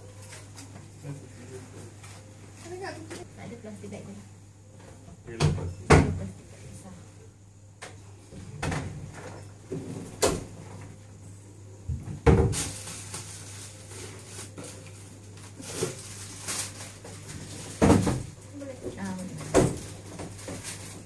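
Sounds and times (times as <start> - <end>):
steady low hum: 0.0 - 21.0
rustling: 12.5 - 21.0.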